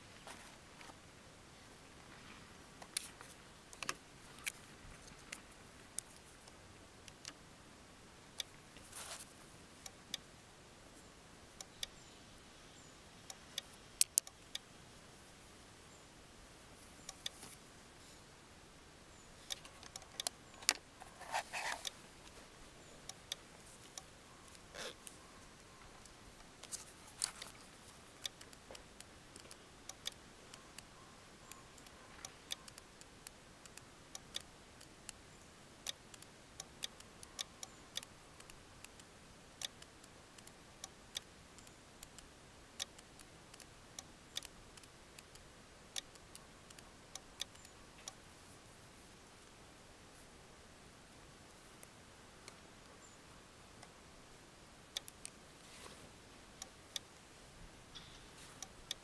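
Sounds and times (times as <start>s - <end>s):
radio controls clicking: 2.8s - 7.4s
short rustle: 8.8s - 9.5s, 55.6s - 56.2s.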